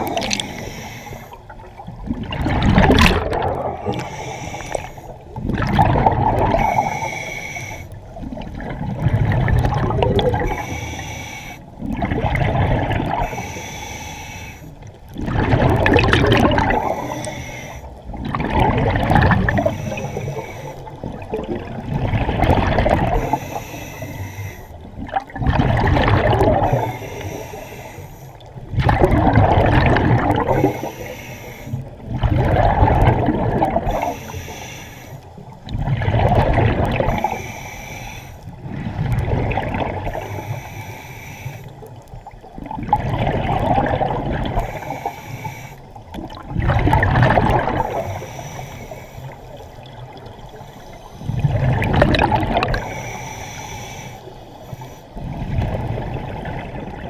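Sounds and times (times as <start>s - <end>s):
diver breathing through regulator: 0.0s - 8.3s, 9.6s - 15.2s, 15.8s - 18.6s, 19.2s - 25.2s, 26.0s - 28.6s, 29.2s - 32.2s, 33.2s - 36.0s, 36.9s - 42.2s, 44.1s - 46.4s, 47.4s - 56.1s
exhaled bubbles gurgling: 0.0s - 57.0s.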